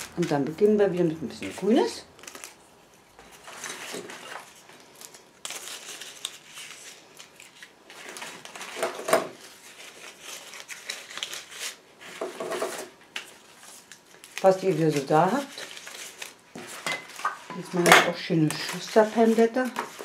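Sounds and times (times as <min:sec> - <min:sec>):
leaves crackling: 0:00.0 - 0:02.7, 0:13.6 - 0:16.5
leafy greenery rustling: 0:13.6 - 0:16.4.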